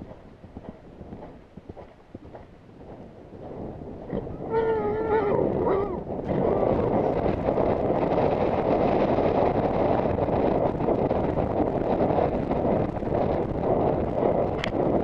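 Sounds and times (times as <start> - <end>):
galloping horse hoofbeats: 0.0 - 15.0
wind rushing over microphone: 0.0 - 15.0
high wavering voice call: 4.3 - 6.8.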